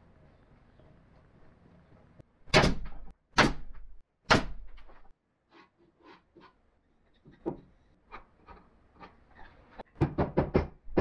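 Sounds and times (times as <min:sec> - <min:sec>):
loud wooden knocks: 0:10.0 - 0:11.0.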